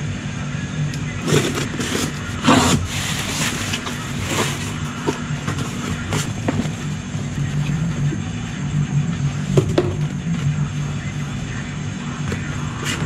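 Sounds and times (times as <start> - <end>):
steady low hum: 0.0 - 13.0
cardboard flaps pulled open: 1.2 - 6.8
packing peanuts rustling: 1.2 - 6.8.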